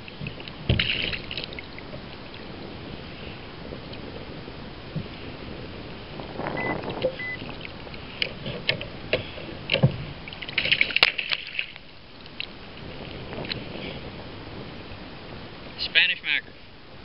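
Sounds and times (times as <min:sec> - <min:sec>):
water splashing: 0:00.0 - 0:03.0, 0:06.2 - 0:13.6
short beeps: 0:06.6 - 0:07.4
knocks against kayak: 0:08.2 - 0:10.0.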